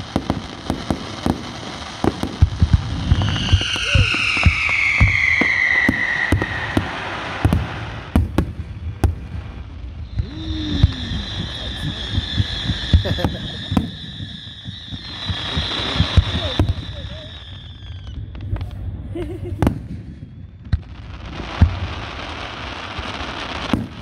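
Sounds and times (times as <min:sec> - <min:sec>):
firework bangs: 0:00.0 - 0:24.0
whistling firework falling: 0:00.0 - 0:24.0
steady high whistle: 0:03.0 - 0:07.0, 0:10.0 - 0:18.5.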